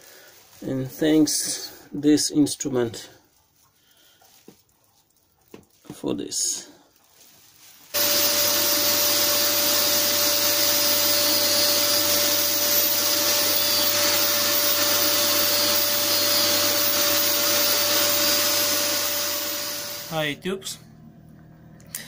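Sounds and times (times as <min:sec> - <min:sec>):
electric belt sander running: 0:08.0 - 0:20.2
vacuum drawing dust: 0:08.0 - 0:20.2
steady hum: 0:08.0 - 0:22.0.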